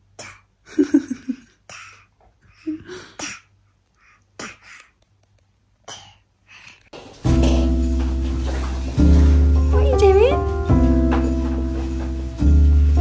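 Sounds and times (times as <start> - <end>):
baby babbling and huffing: 1.6 - 5.0.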